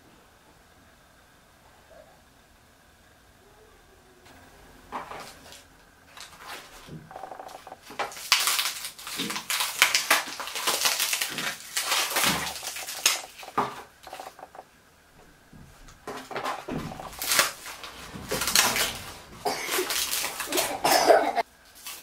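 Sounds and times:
dried fish crackling and tearing: 0:05.0 - 0:14.6, 0:16.2 - 0:20.8, 0:21.7 - 0:22.0.

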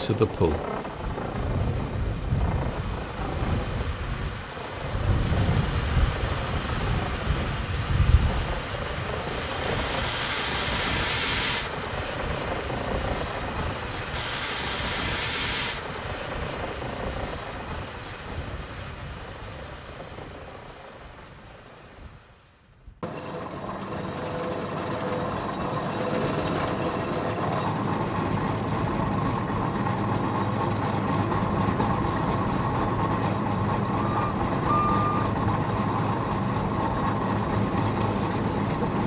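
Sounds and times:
steam hissing: 0:03.0 - 0:17.6
steam engine chuffing: 0:06.1 - 0:17.8, 0:23.1 - 0:39.0.

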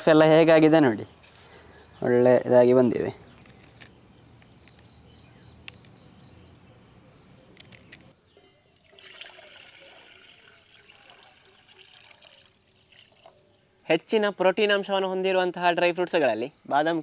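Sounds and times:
high insect trill: 0:00.1 - 0:08.2
water pouring into saucepan: 0:08.7 - 0:13.4.

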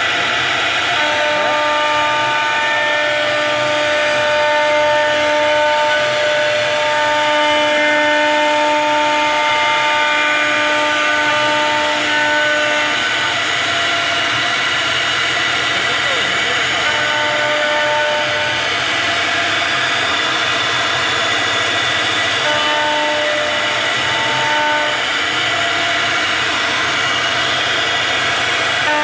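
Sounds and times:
router spindle whining: 0:11.5 - 0:29.0.

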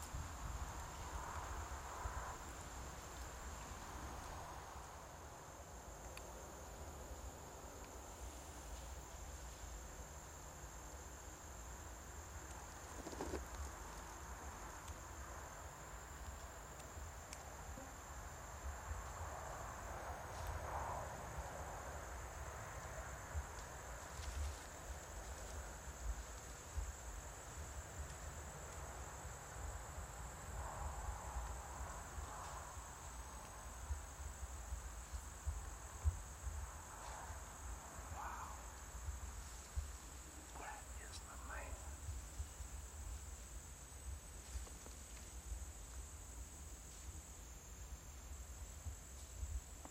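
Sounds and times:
insects droning: 0:00.0 - 0:49.9.

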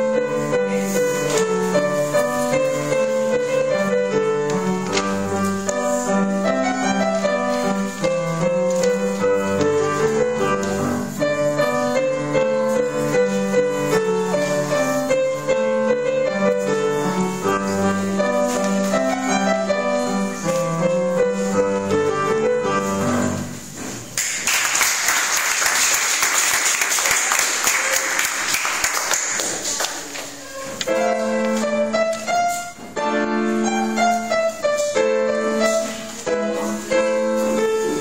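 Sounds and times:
solo piano piece: 0:00.0 - 0:38.0
audience applause: 0:24.2 - 0:30.4.

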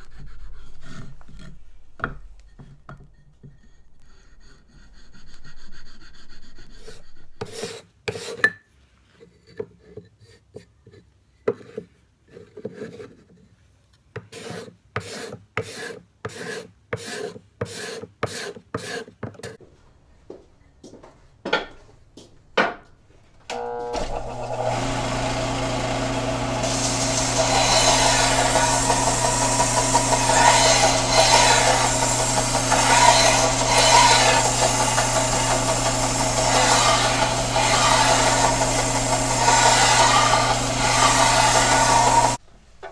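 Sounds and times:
file rasping on wood: 0:02.6 - 0:08.5, 0:14.2 - 0:19.2, 0:24.8 - 0:42.4
hand plane strokes on wood: 0:14.3 - 0:19.1, 0:24.8 - 0:42.4
belt sander running: 0:23.5 - 0:42.4.

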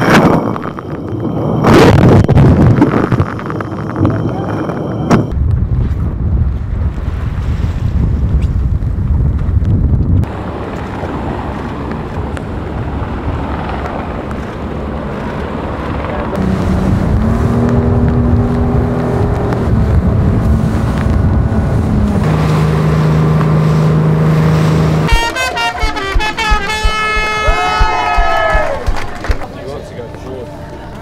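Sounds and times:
low drone: 0:00.0 - 0:05.4, 0:16.1 - 0:31.0
wind: 0:00.0 - 0:31.0
crashing water: 0:16.4 - 0:29.6.

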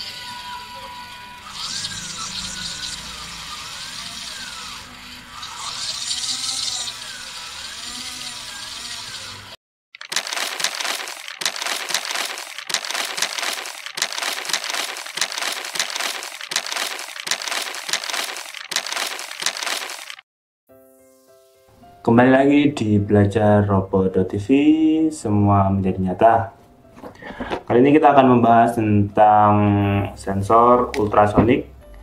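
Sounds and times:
paper crumpling: 0:10.0 - 0:20.2.

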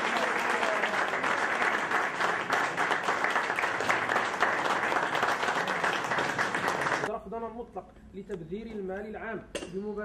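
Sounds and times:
crowd applauding: 0:00.0 - 0:07.1.

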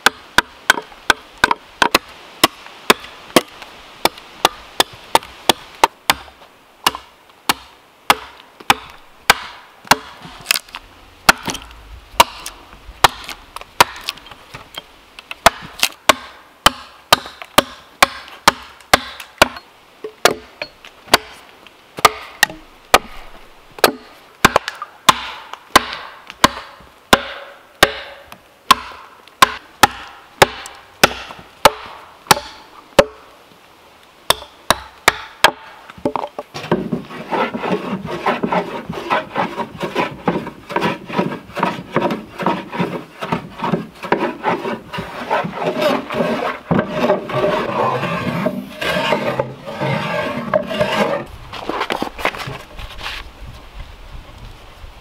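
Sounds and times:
hand tool striking wood: 0:00.0 - 0:10.6, 0:11.3 - 0:14.2, 0:15.4 - 0:21.4, 0:22.0 - 0:33.2.

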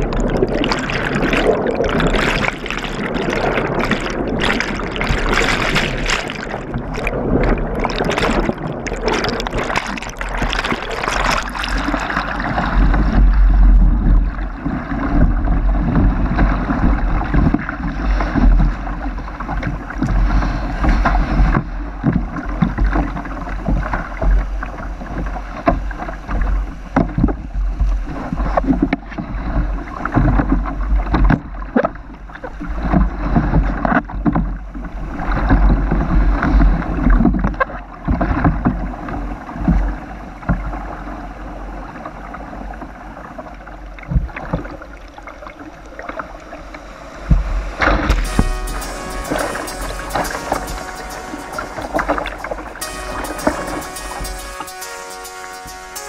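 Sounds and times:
river water rushing and splashing: 0:00.0 - 0:13.2.

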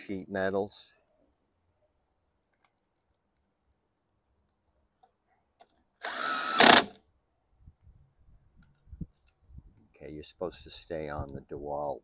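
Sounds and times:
cordless driver motor whine: 0:06.0 - 0:06.9.

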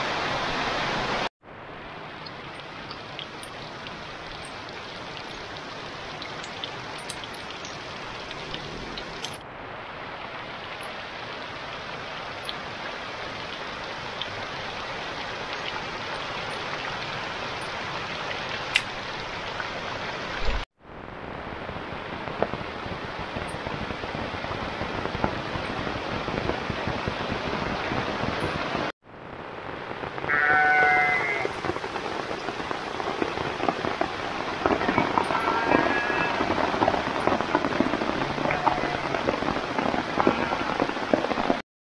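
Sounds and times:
heavy rain falling: 0:00.0 - 0:41.6
sheep bleat: 0:30.3 - 0:31.5, 0:34.7 - 0:36.5, 0:38.2 - 0:39.4, 0:40.1 - 0:41.0.

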